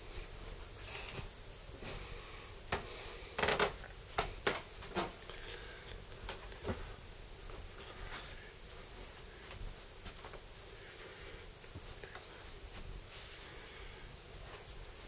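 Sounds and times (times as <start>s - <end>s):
soft footsteps: 6.1s - 10.9s, 11.6s - 15.0s.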